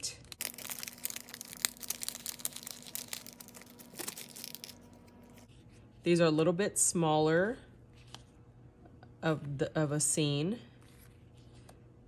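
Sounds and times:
plastic packaging crinkling: 0.2s - 5.5s.

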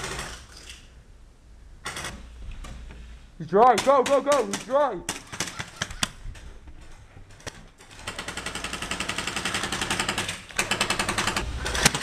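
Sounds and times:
airsoft rifle rapid fire: 0.0s - 0.4s, 3.7s - 6.1s, 7.9s - 12.0s.

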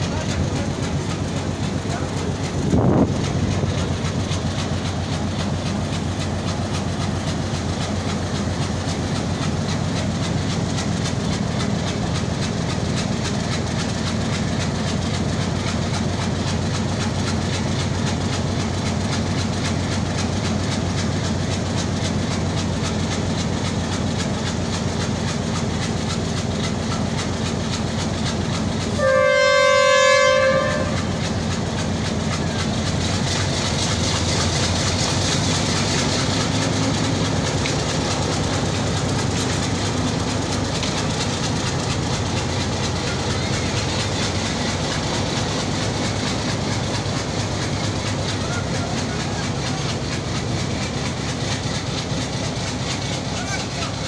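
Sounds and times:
diesel locomotive engine running: 0.0s - 54.0s
train horn blast: 28.9s - 31.2s.

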